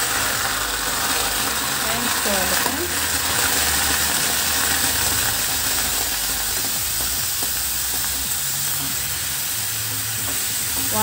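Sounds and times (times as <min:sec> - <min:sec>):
tomatoes hissing in hot pan: 0:00.0 - 0:11.0.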